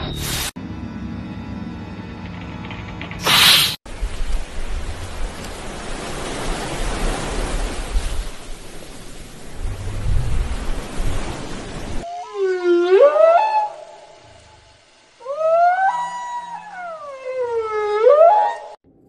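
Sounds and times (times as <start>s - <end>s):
underwater rushing hiss: 3.2s - 3.8s
whale call: 12.0s - 18.8s.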